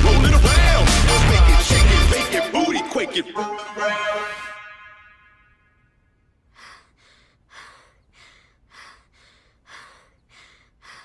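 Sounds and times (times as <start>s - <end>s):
person breathing heavily: 6.2s - 11.0s.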